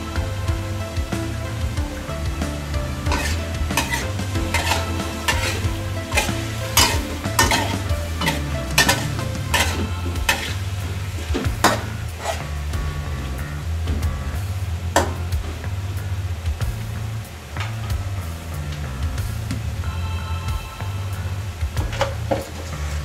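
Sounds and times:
food sizzling: 0.0 - 20.0
metal spatula scraping wok: 3.0 - 12.5.

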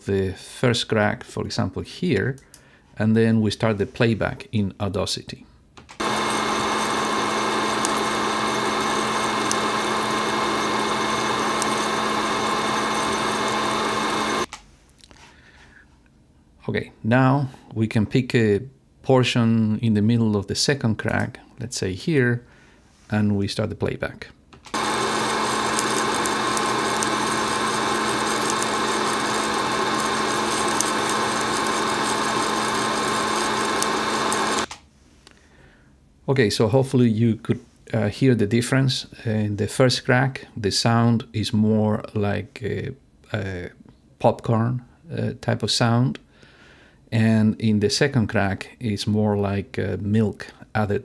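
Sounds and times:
coffee roaster fan running: 6.0 - 14.5, 24.8 - 34.7
coffee beans popping: 24.8 - 34.7.

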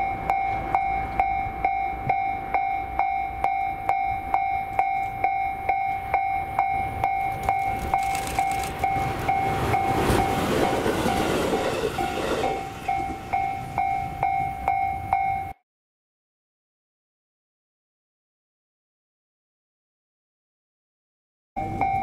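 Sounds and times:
train passing: 0.0 - 15.5
level crossing alarm clanging: 0.0 - 15.6, 21.6 - 22.0.

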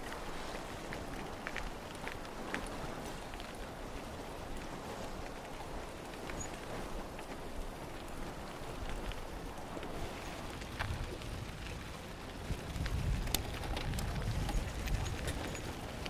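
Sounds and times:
rushing outdoor noise: 0.0 - 16.0
faint clicks: 4.6 - 16.0.

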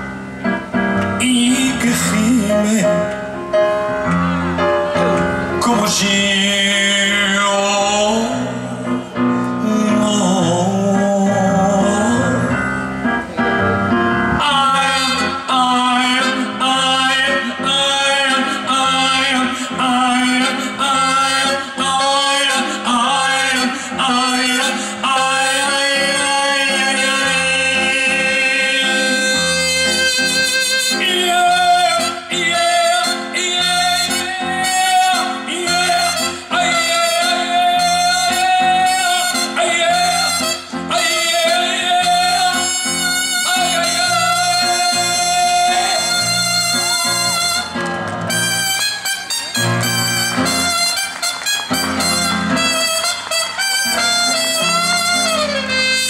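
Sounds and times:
band playing: 0.0 - 56.0
man singing: 1.1 - 3.4, 5.5 - 12.8, 14.2 - 47.8, 51.7 - 56.0
trumpet: 14.2 - 56.0.

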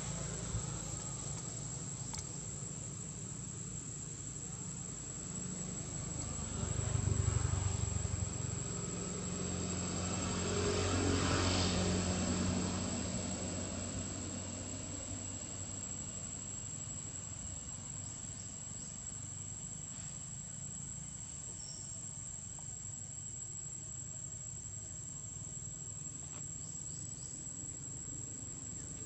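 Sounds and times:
distant motor engine humming: 0.0 - 19.1
high insect buzz: 0.0 - 29.0.

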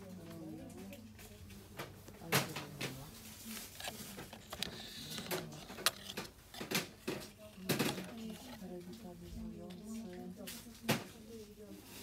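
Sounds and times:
low hum of shop background: 0.0 - 12.0
plastic packs clicking on metal hooks: 3.6 - 8.9.

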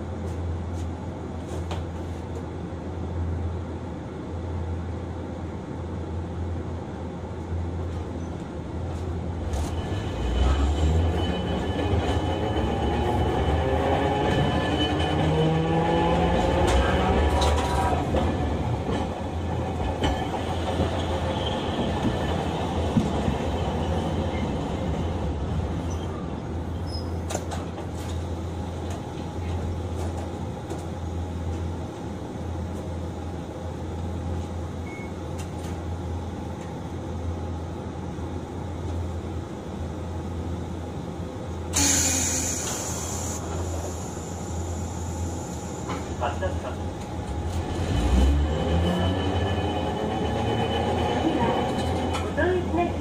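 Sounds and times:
tram low hum: 0.0 - 53.0
wheels rolling on rail: 7.9 - 32.9, 41.7 - 53.0
short hiss: 41.8 - 43.6.

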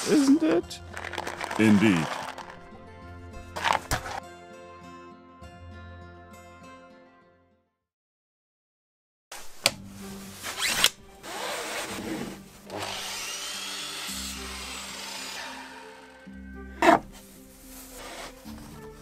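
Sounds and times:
soft background music: 0.0 - 7.3, 9.4 - 19.0
power tool running: 12.7 - 16.3.

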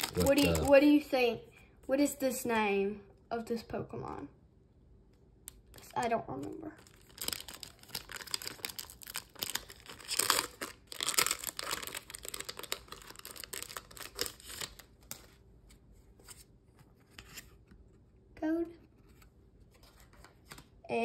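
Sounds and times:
cards rustling: 0.0 - 0.8, 5.6 - 17.6, 19.1 - 20.7
foil wrapper crinkling and tearing: 0.0 - 0.8, 5.5 - 15.4.

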